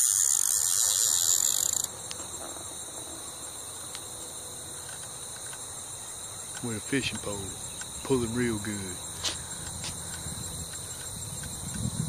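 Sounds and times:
insects trilling: 0:00.0 - 0:12.0.

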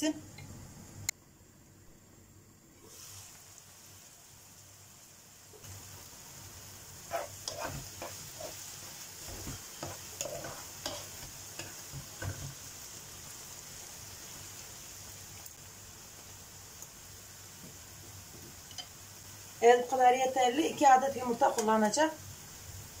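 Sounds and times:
sauce sizzling in frying pan: 0:02.8 - 0:23.0
spatula scraping pan: 0:07.0 - 0:12.6.

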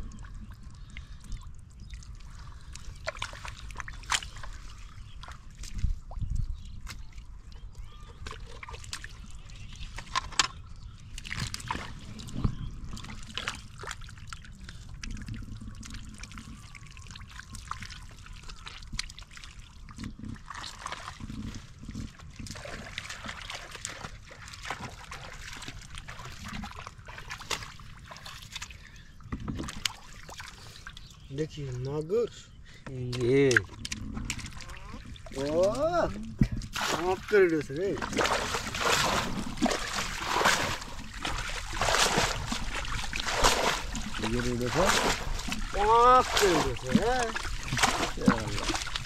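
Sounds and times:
hands splashing through mud: 0:02.9 - 0:05.8, 0:36.6 - 0:37.4, 0:38.0 - 0:49.0.

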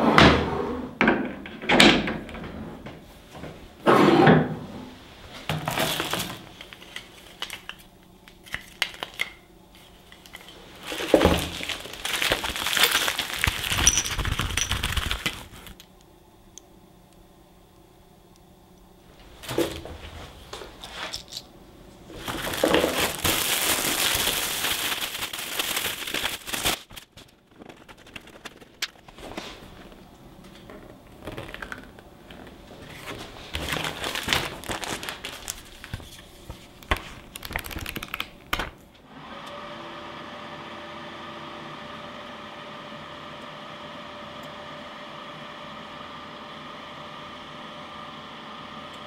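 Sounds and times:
steady mechanical hum: 0:00.0 - 0:49.0
plastic wrapping crinkling: 0:05.6 - 0:15.8, 0:22.1 - 0:38.7.

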